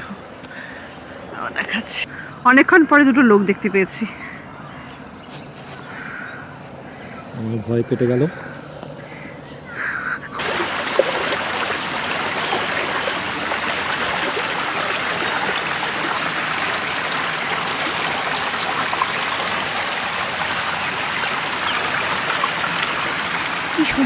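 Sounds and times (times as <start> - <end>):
stream flowing over rocks: 10.4 - 24.0.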